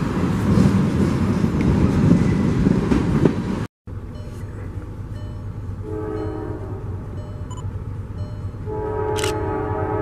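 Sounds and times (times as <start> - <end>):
freight train rumble: 0.0 - 10.0
locomotive air horn blast: 5.8 - 7.0, 8.6 - 10.0.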